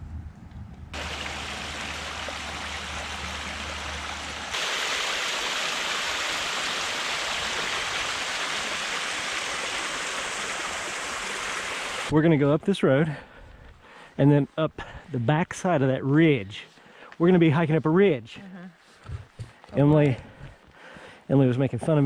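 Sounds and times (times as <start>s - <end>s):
low rumble: 0.0s - 1.2s
creek water rushing: 1.0s - 12.2s.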